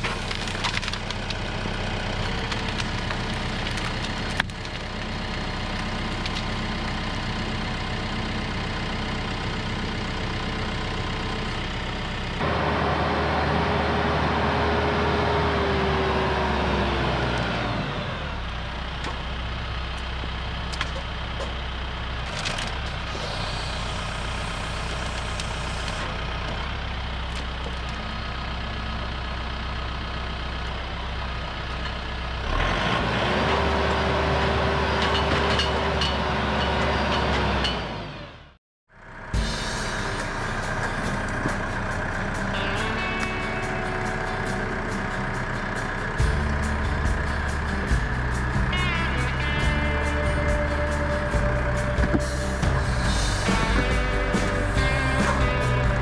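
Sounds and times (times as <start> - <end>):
tractor diesel engine running: 0.0 - 56.0
engine whine falling in pitch: 39.0 - 56.0.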